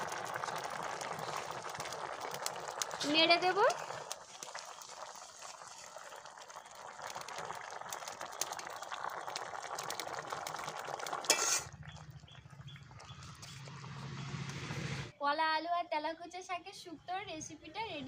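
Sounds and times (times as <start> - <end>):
curry bubbling: 0.0 - 14.7
metal spatula scraping pot: 11.2 - 11.8.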